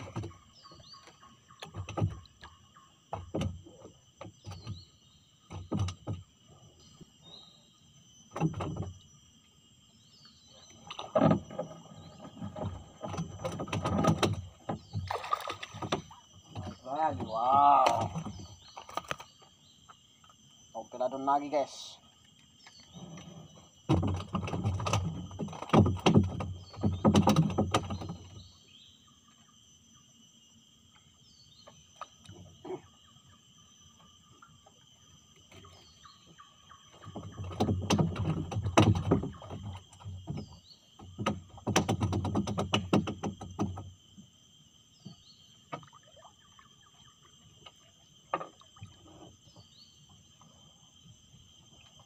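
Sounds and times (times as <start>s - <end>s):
insect chorus: 0.0s - 52.0s
short falling insect chirp: 14.8s - 21.6s.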